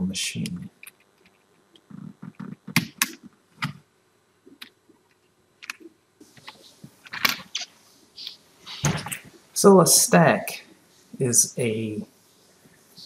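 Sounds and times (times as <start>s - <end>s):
faint hiss: 6.2s - 13.0s.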